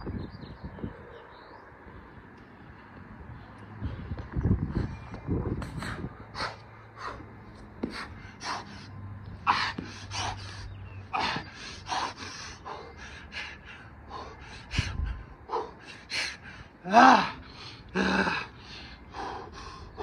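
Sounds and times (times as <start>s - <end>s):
man panting hard: 5.7s - 20.0s.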